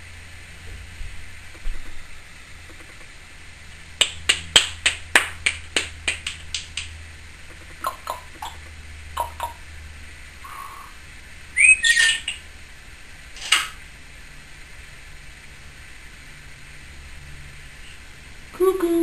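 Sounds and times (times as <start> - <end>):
parrot clicking: 7.5 - 9.6
parrot squawks: 9.2 - 9.6, 11.6 - 12.4.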